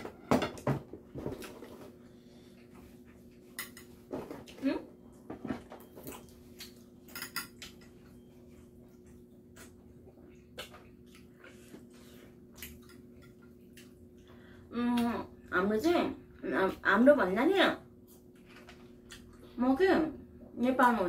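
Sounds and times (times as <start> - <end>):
faint steady hum: 0.0 - 21.0
chopsticks clinking on dishes: 7.1 - 7.8.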